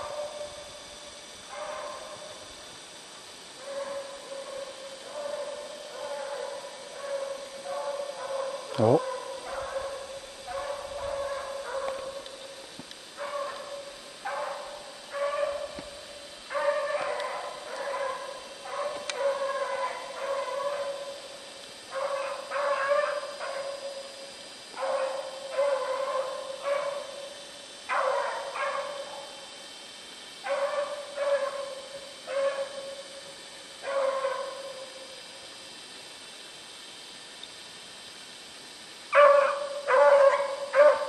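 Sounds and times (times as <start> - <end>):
hound barking: 0.0 - 0.6, 1.4 - 2.4, 3.6 - 12.3, 13.2 - 15.8, 16.5 - 21.2, 21.9 - 24.0, 24.7 - 27.3, 27.9 - 29.4, 30.4 - 33.1, 33.8 - 35.0, 39.1 - 41.0.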